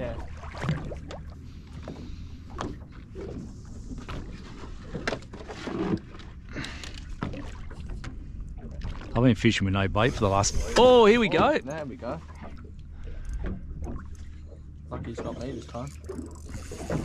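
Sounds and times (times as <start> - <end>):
boat low rumble: 0.0 - 17.0
water against hull: 0.0 - 17.0.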